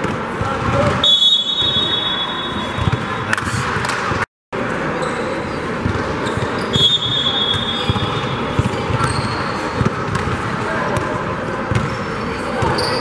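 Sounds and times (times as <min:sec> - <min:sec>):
murmur of activity: 0:00.0 - 0:13.0
high whistle-like tone: 0:01.0 - 0:02.8
basketball bouncing on court: 0:02.7 - 0:04.2, 0:07.5 - 0:12.0.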